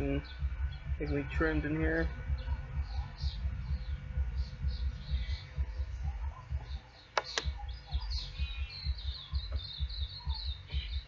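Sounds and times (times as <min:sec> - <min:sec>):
small songbird chirping: 0:00.0 - 0:11.0
sharp clicks: 0:07.2 - 0:07.6.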